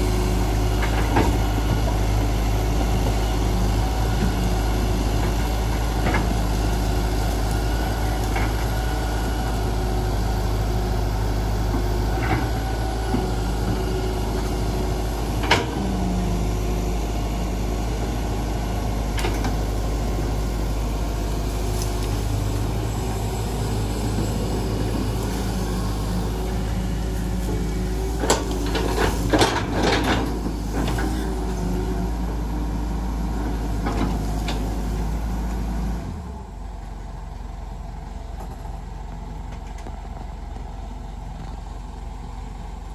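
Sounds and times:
excavator diesel engine running: 0.0s - 42.9s.

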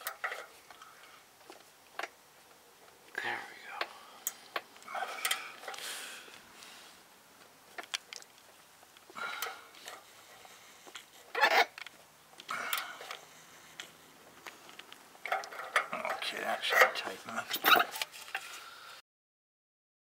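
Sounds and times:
metal scraping: 11.2s - 11.8s, 15.2s - 18.6s.

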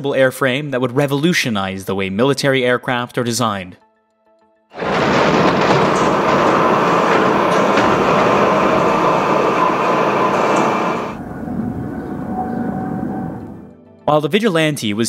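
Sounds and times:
loud mechanical din: 4.8s - 11.2s
machinery clatter: 4.8s - 11.3s.

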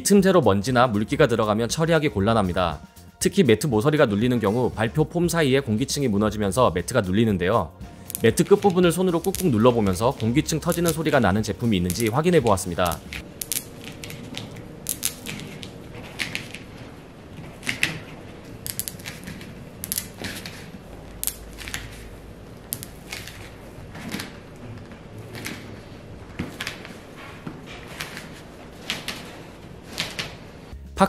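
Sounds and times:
foam mat crackling clicks: 8.0s - 30.7s.

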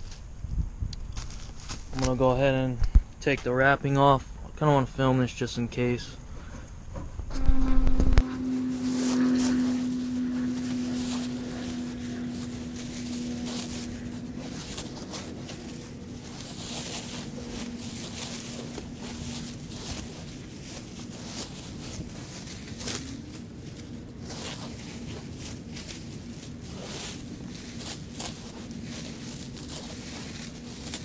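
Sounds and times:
steady low hum: 0.0s - 31.0s
plastic wrap crinkling: 8.0s - 31.0s.

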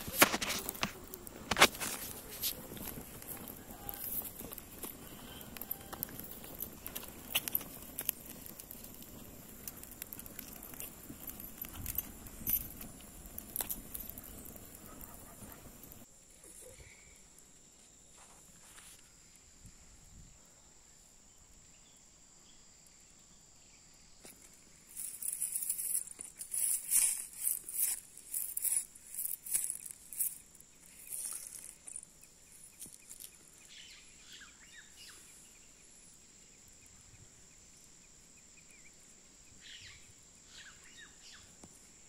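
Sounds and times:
twig fire crackling: 0.0s - 19.4s, 24.2s - 42.0s.

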